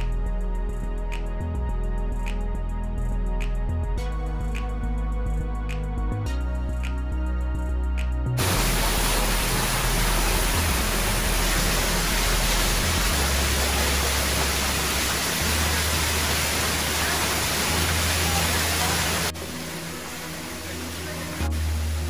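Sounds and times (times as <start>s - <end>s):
low background music: 0.0s - 22.0s
waterfall rushing: 8.4s - 22.0s.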